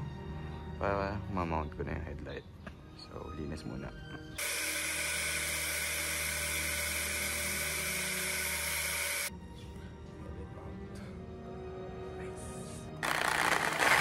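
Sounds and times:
angle grinder on metal: 4.4s - 9.3s, 13.0s - 14.0s.

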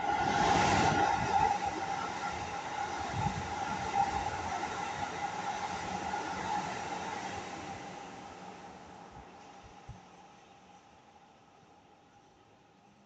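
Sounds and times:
electric train passing: 0.0s - 9.1s.

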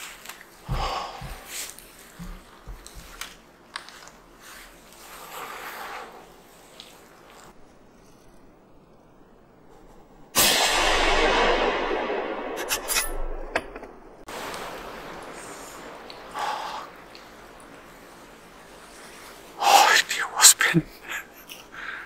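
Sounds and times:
faint background noise: 0.0s - 22.0s
rifle shot echoing: 10.4s - 14.3s.

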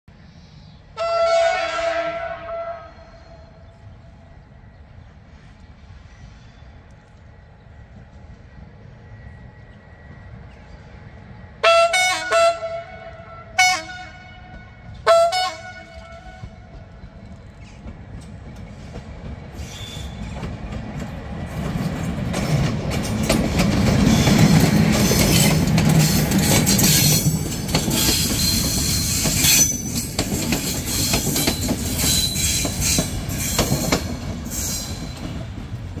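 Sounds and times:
train passing: 0.1s - 36.0s
wheels squealing on rails: 14.9s - 36.0s
wheels clattering over rail joints: 20.0s - 36.0s.

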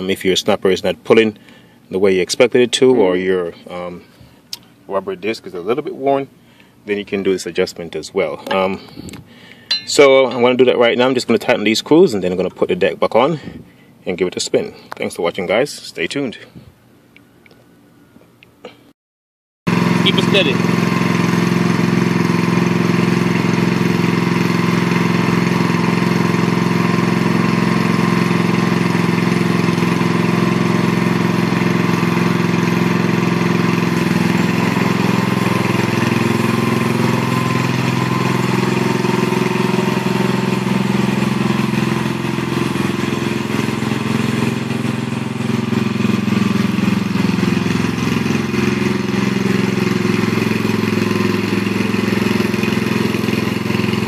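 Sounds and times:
riding mower engine running: 7.8s - 12.6s, 19.7s - 54.0s.

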